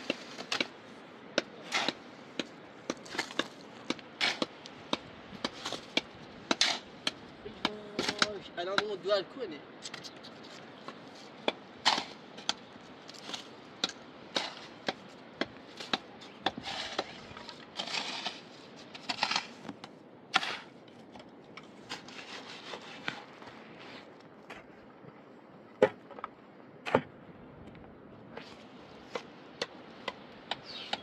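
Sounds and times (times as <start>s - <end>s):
scraping and rubbing: 15.7s - 19.8s, 21.8s - 24.1s.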